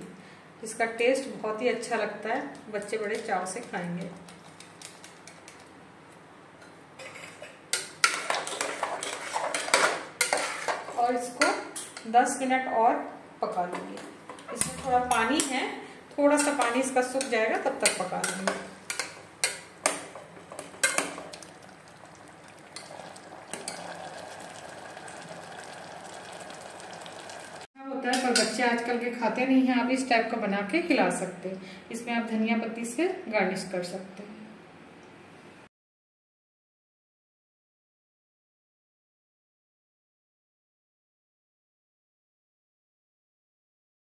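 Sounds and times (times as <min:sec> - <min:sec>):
spoon clinking and scraping pot: 0:07.0 - 0:12.1, 0:16.4 - 0:21.6, 0:22.2 - 0:24.8
curry bubbling: 0:19.0 - 0:27.7.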